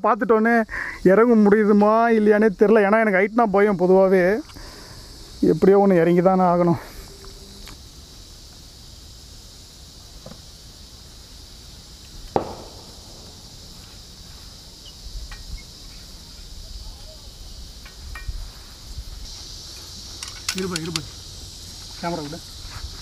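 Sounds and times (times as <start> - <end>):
high-pitched insect drone: 0.0 - 23.0
sharp knock: 12.4 - 13.4.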